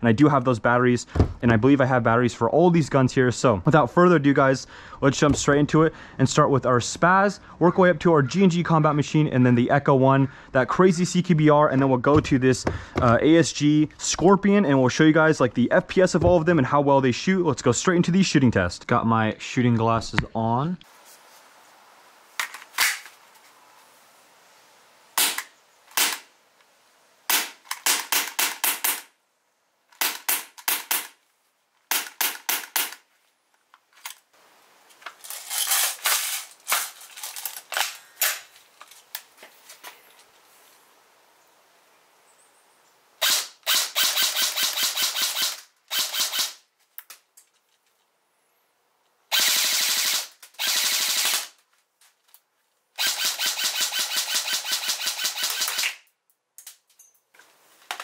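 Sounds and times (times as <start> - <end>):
airsoft rifle full-auto bursts: 43.2 - 46.6, 49.3 - 51.6, 53.0 - 56.0.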